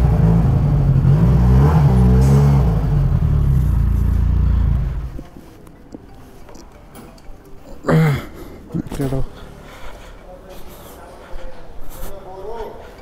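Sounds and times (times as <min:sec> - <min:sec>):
motorcycle engine revving: 0:00.0 - 0:05.2.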